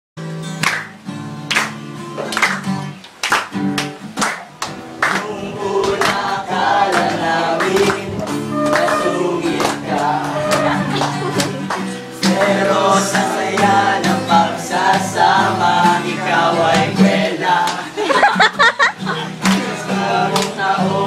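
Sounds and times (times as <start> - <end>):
acoustic guitar strumming: 0.2 - 21.0
young men singing: 5.1 - 18.4, 19.4 - 21.0.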